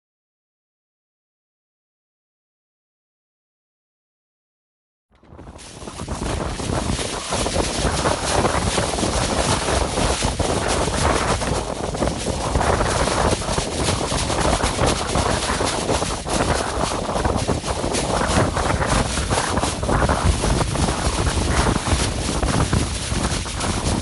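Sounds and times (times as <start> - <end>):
plastic sheet flapping: 5.2 - 24.0
wind buffeting microphone: 5.2 - 24.0.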